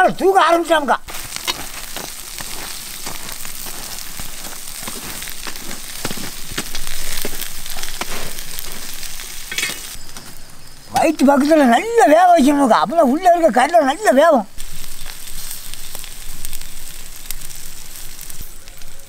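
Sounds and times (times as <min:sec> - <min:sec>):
fish sizzling on a grill: 0:00.0 - 0:19.0.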